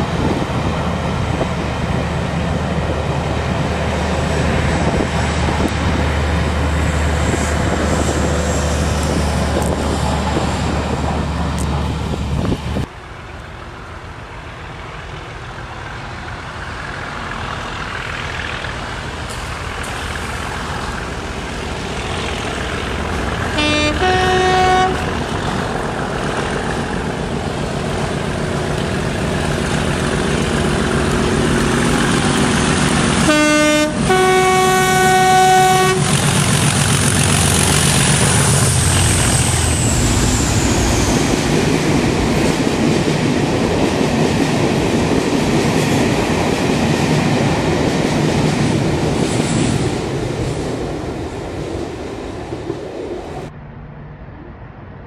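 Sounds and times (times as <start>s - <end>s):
diesel locomotive engine working hard: 0.0s - 53.6s
train engine cutting off: 15.1s - 34.2s, 35.7s - 52.8s
two-tone train horn: 23.5s - 25.3s, 33.2s - 36.3s.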